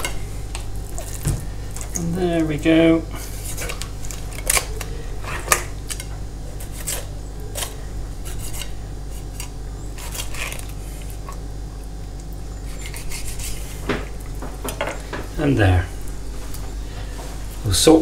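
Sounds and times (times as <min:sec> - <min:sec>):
knife scraping fish bones: 0:03.2 - 0:04.8, 0:05.4 - 0:11.4, 0:12.7 - 0:13.8.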